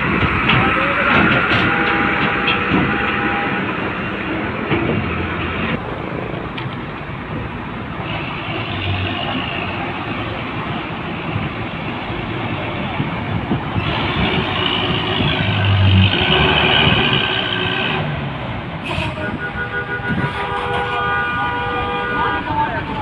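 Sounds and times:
heavy truck engine running: 0.0 - 23.0
truck driving through floodwater: 7.2 - 19.7.

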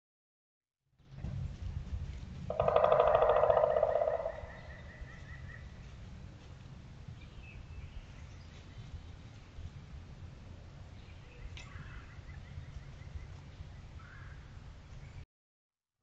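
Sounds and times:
steady low rumble: 1.0 - 3.0, 4.0 - 15.1
woodpecker drumming on wood: 2.5 - 5.6.

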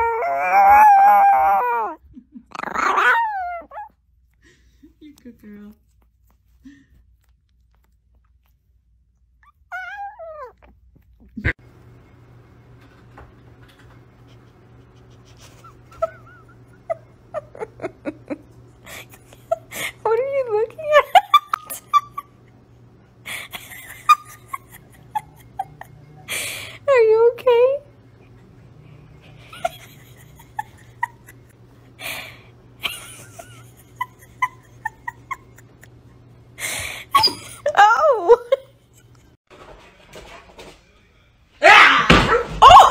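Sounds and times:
dog whimpering: 0.0 - 4.0, 9.4 - 11.6, 37.1 - 38.6
dog whining: 0.0 - 4.0, 9.4 - 11.6, 37.1 - 38.3
background hum: 0.0 - 42.9
puppy squeaking: 9.4 - 10.8, 37.1 - 37.6.

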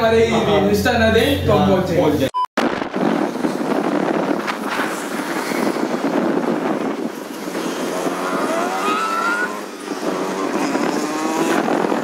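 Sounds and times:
rushing wind: 2.6 - 12.0
traffic noise: 2.9 - 12.0
engine speeding up: 4.9 - 12.0.

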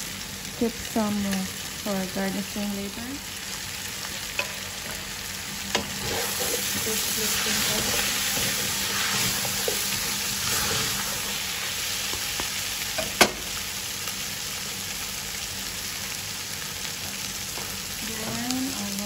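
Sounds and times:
chicken sizzling in a pot: 0.0 - 19.0
wooden spoon stirring: 5.8 - 11.3.

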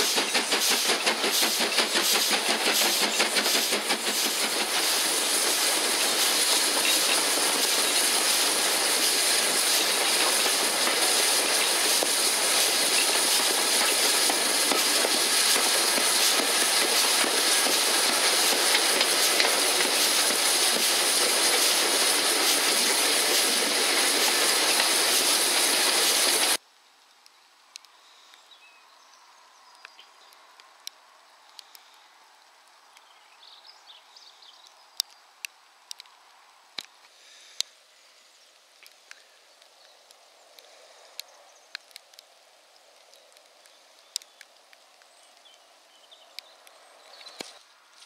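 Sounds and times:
steam train running: 0.0 - 26.6.

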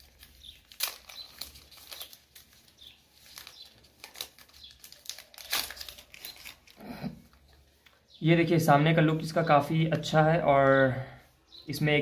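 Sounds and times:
plastic film crinkling: 0.0 - 8.1.

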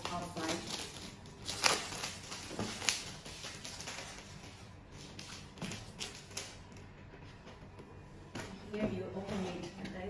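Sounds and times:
plastic shrink wrap crinkling: 0.0 - 6.9.

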